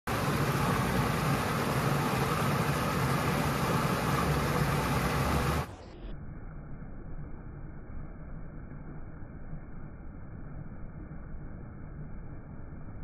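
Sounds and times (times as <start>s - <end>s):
waterfall rushing and splashing: 0.1s - 5.7s
muffled water: 0.1s - 13.0s.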